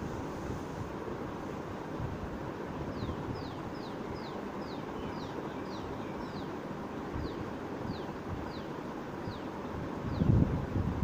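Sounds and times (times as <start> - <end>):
steady rushing noise: 0.0 - 11.0
small bird chirping: 2.9 - 6.6, 7.2 - 9.5.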